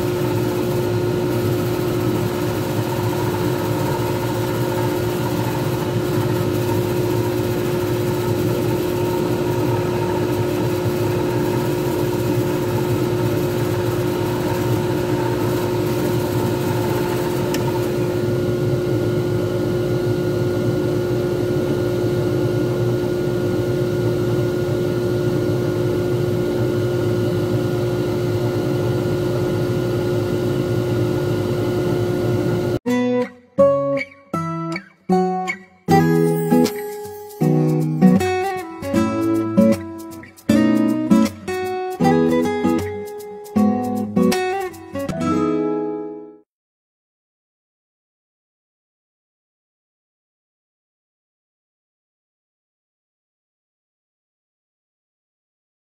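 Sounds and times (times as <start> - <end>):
lathe motor humming: 0.0 - 19.4.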